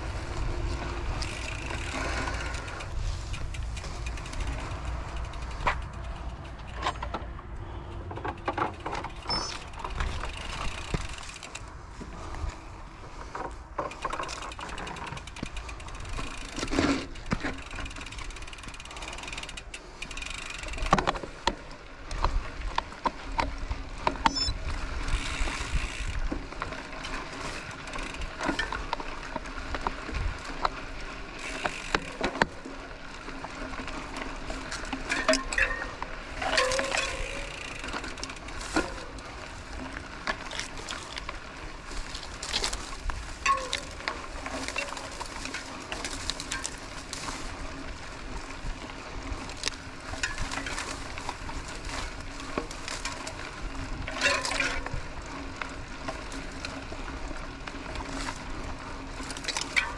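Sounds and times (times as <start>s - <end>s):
bike chain and frame rattling: 0.0s - 59.9s
rolling and wind rumble: 0.0s - 59.9s.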